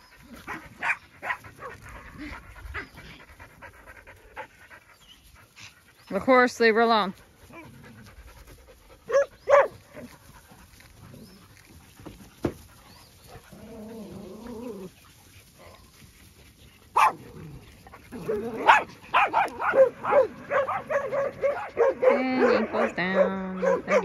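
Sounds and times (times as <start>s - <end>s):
dogs barking: 0.0s - 2.2s, 9.0s - 10.1s, 16.9s - 17.4s, 18.1s - 24.0s.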